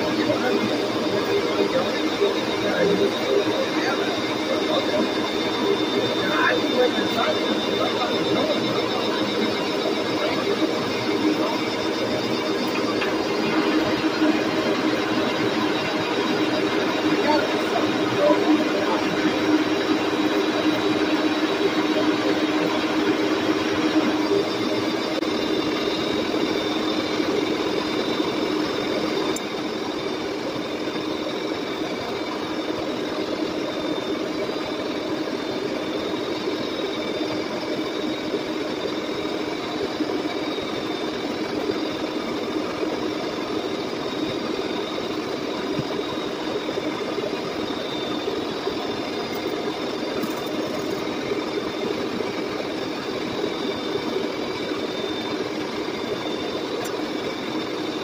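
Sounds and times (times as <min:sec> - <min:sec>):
boring mill machine hum: 0:00.0 - 0:58.0.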